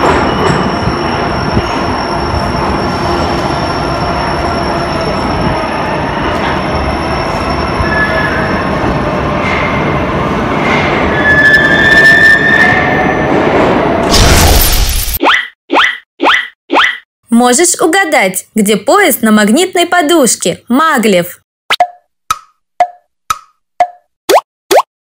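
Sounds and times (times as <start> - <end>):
train wheels rumbling on rails: 0.0 - 14.1.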